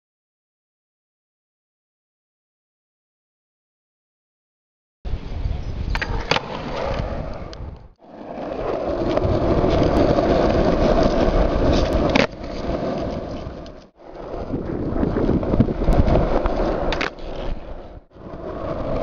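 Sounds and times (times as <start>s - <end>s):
skateboard wheels rolling on asphalt: 5.1s - 19.0s
skateboard clacks: 5.9s - 19.0s.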